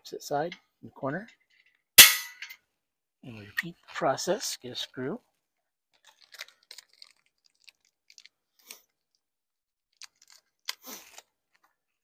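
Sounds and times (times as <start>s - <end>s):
packet crinkling: 5.9s - 9.2s, 9.9s - 11.7s.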